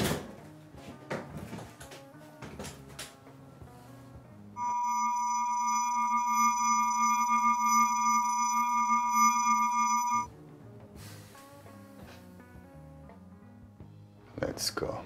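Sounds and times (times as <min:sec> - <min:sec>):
faint background music: 0:00.0 - 0:04.6, 0:10.3 - 0:15.0
electronic hum and ringing whine: 0:04.6 - 0:10.3.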